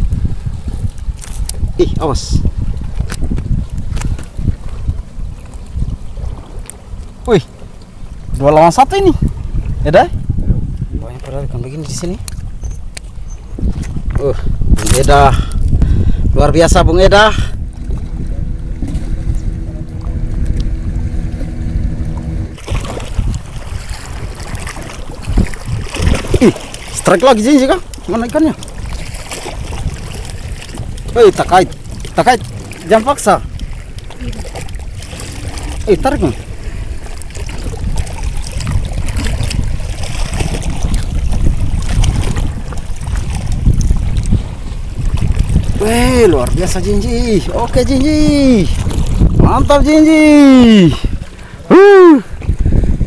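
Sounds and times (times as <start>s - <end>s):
wind buffeting microphone: 0.0s - 53.0s
boat motor running: 15.0s - 53.0s.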